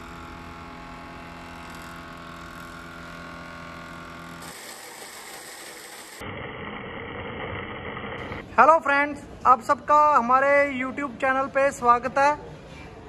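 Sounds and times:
wood planer running: 0:00.0 - 0:08.5
woodworking machinery running: 0:00.0 - 0:08.6.

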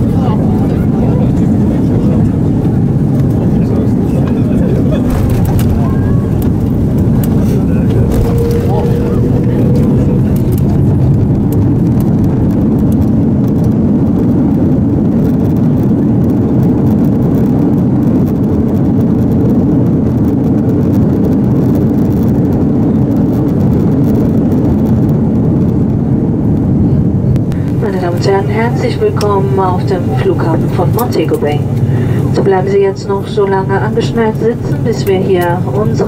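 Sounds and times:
jet engine and rollout rush: 0:00.0 - 0:36.0.

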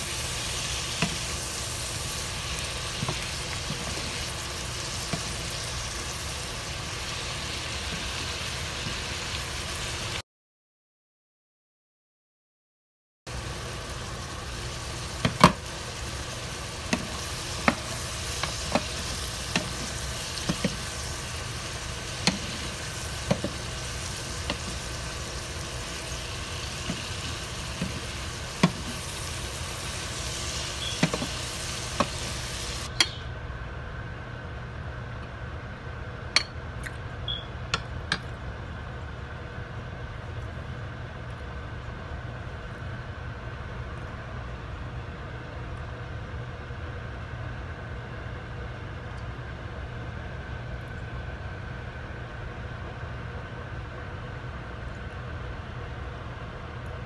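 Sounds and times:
food sizzling in a frying pan: 0:00.0 - 0:10.2, 0:13.3 - 0:32.9.

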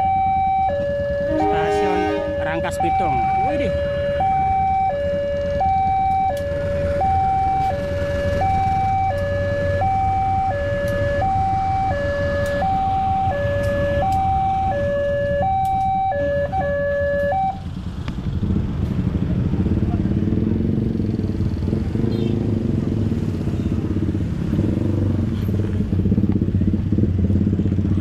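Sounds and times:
two-tone crossing alarm: 0:00.0 - 0:17.7
diesel locomotive rumble: 0:00.0 - 0:28.0.

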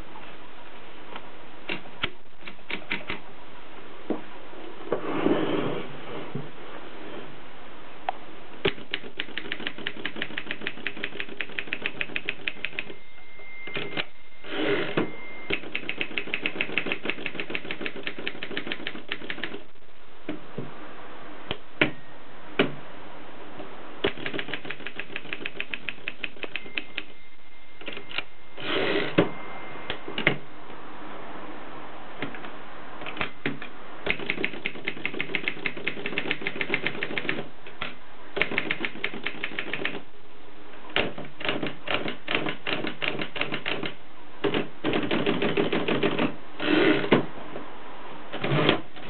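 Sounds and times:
typewriter carriage return sweep: 0:08.7 - 0:12.9, 0:13.7 - 0:19.6
typewriter keystrikes: 0:08.7 - 0:12.9, 0:15.5 - 0:19.6, 0:24.0 - 0:27.0, 0:33.1 - 0:37.5, 0:38.4 - 0:40.0, 0:41.0 - 0:46.3.

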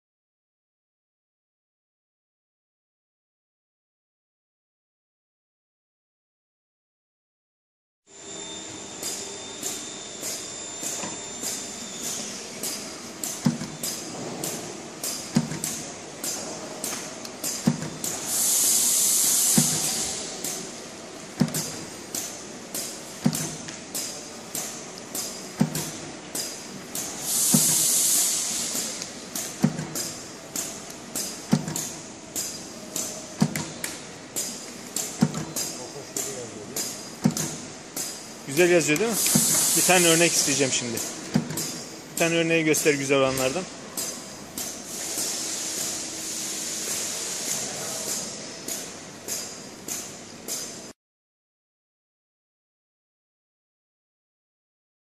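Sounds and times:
loud air hiss: 0:18.0 - 0:20.8, 0:26.4 - 0:33.2, 0:38.3 - 0:41.1, 0:41.8 - 0:48.9.

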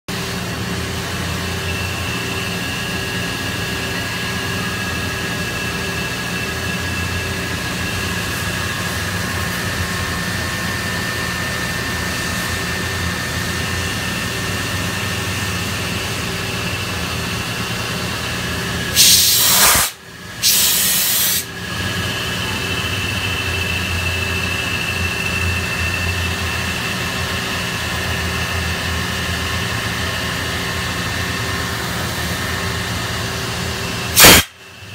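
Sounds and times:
loud hissing bursts: 0:18.9 - 0:21.5, 0:34.1 - 0:34.6
machine cutting metal: 0:34.1 - 0:34.5.

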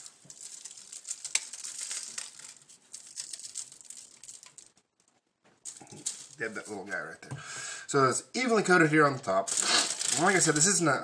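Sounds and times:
seasoning pattering on foil: 0:00.0 - 0:04.8, 0:05.6 - 0:06.9, 0:09.5 - 0:10.8.

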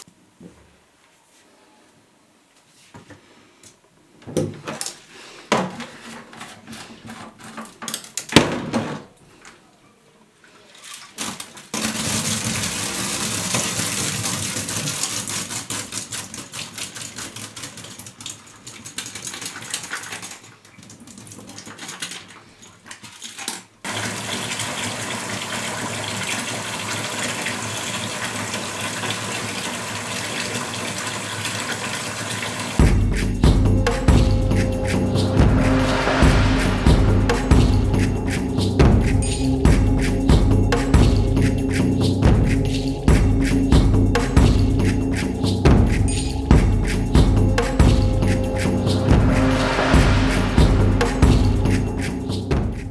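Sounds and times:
water rushing into a sink: 0:10.8 - 0:17.0, 0:23.9 - 0:32.8.

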